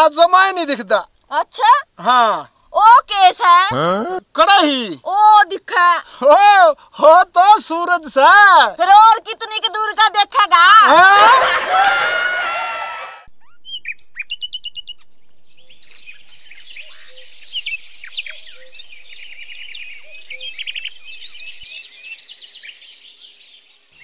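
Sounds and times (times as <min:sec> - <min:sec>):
small birds chirping: 0:13.4 - 0:24.0.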